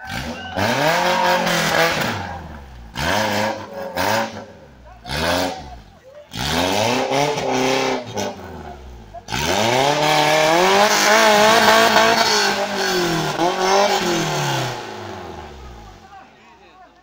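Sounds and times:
engine revving hard: 0.0s - 16.2s.

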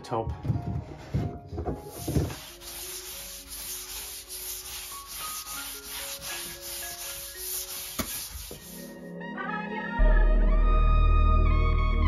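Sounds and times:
hand rubbing wax on wood: 1.7s - 9.0s.

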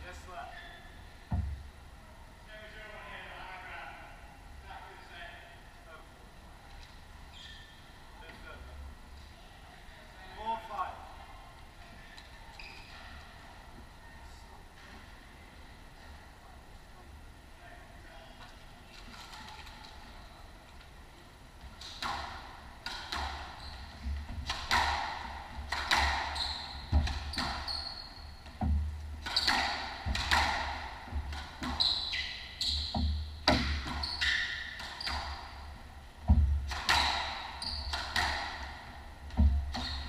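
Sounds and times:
shoes squeaking on hardwood floor: 7.3s - 7.9s, 23.6s - 24.3s, 26.0s - 29.8s, 31.1s - 36.4s, 37.0s - 38.1s, 39.4s - 40.0s
squash ball cracking off rackets: 24.3s - 27.7s, 28.6s - 31.8s, 36.3s - 38.7s.

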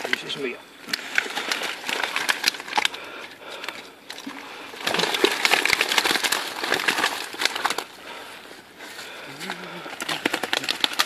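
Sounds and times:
nylon net rustling: 4.2s - 11.0s.

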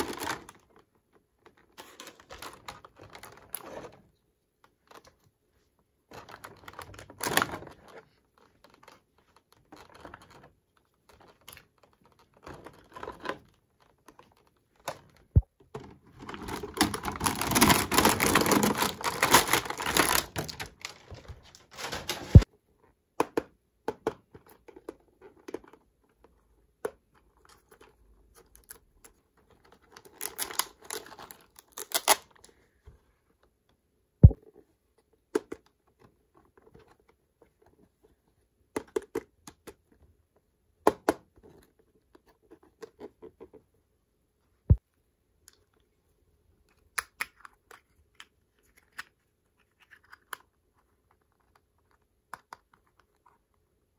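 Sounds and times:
plastic packaging crinkling and tearing: 0.0s - 0.6s, 16.2s - 22.5s, 29.7s - 32.4s.

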